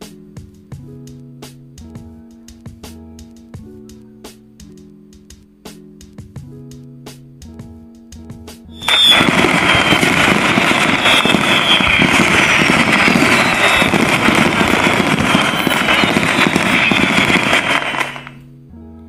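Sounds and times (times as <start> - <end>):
high falling whistle: 8.8 - 18.3
dense firework crackling: 8.8 - 18.4.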